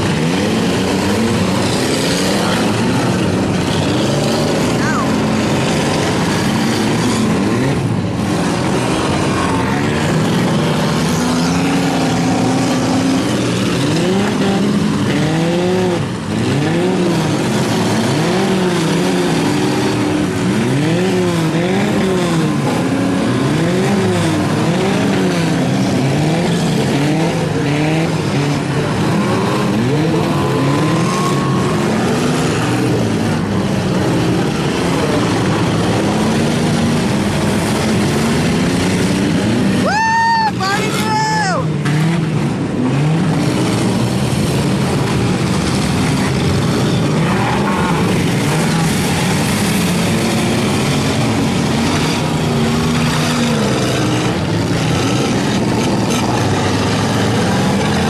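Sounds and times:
car engines revving hard: 0.0 - 58.0.

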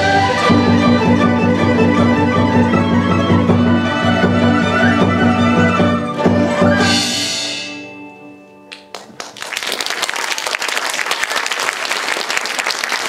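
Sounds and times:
traditional orchestra final chord: 6.2 - 9.0
cymbal crash: 6.4 - 8.3
audience applause: 8.9 - 13.0.

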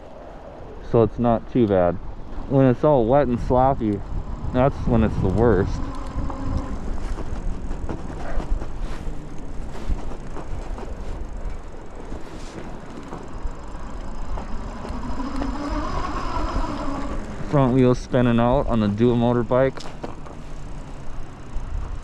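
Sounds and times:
faint electric motor whine: 0.0 - 22.0
wind buffeting microphone: 0.0 - 22.0
tyres rumbling on snow: 0.8 - 22.0.

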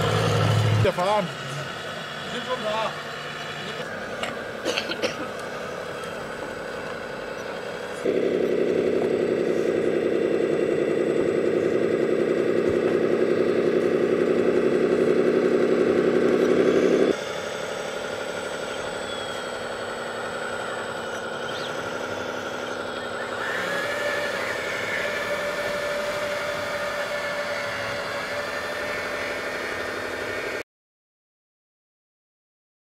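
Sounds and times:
model bulldozer engine drone: 0.0 - 30.6.

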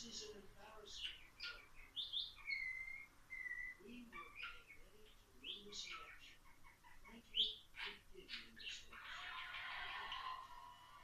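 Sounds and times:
budgerigar chattering and warbling: 0.0 - 10.5
budgerigar whistled notes: 1.4 - 3.8.

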